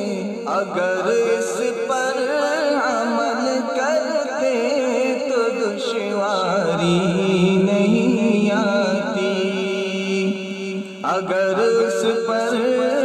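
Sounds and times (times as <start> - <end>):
man singing: 0.0 - 13.0.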